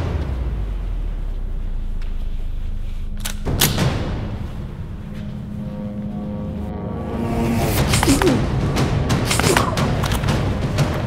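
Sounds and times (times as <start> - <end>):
dramatic action music: 2.7 - 11.0.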